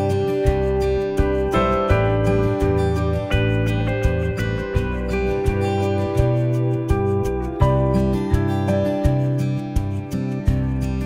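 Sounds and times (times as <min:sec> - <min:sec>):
plucked acoustic guitar: 0:00.0 - 0:11.0
steady bass line: 0:00.0 - 0:11.0.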